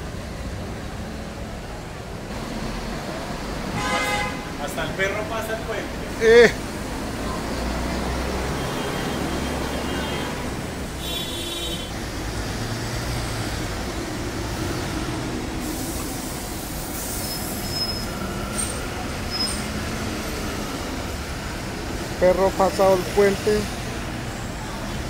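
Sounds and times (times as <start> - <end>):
road traffic rumble: 0.0 - 25.0
short high squeal: 16.9 - 19.8.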